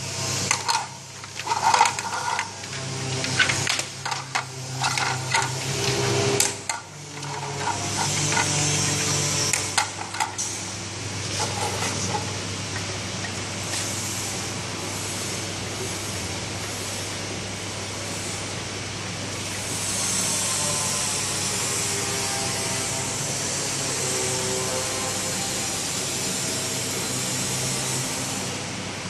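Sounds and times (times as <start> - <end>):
low machinery hum: 0.0 - 27.2.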